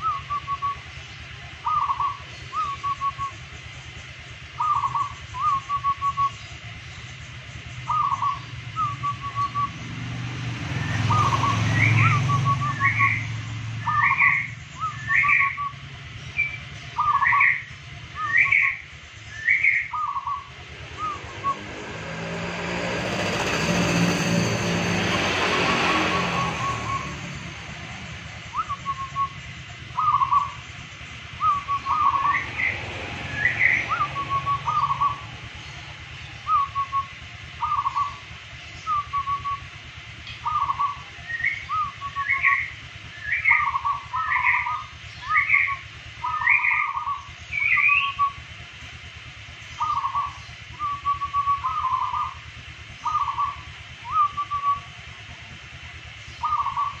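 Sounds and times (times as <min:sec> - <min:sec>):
bird rising notes: 0:07.9 - 0:15.8, 0:18.2 - 0:30.6, 0:31.3 - 0:35.6.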